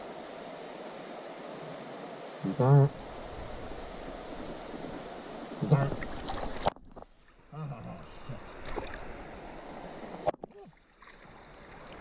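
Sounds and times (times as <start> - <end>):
creek water lapping: 0.0 - 12.0
muffled vocal sounds: 2.4 - 3.0.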